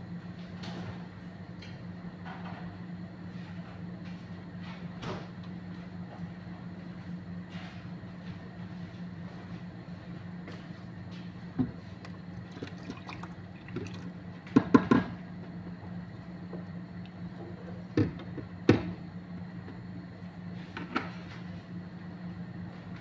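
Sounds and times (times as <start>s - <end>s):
liquid pouring into pot: 12.3s - 14.1s.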